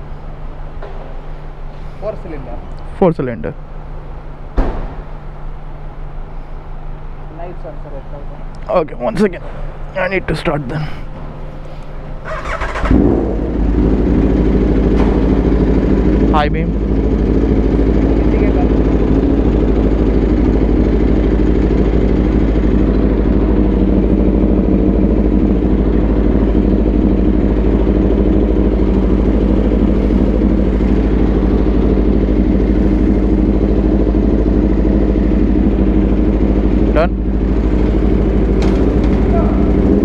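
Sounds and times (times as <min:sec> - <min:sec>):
motorcycle engine idling: 0:09.6 - 0:40.0.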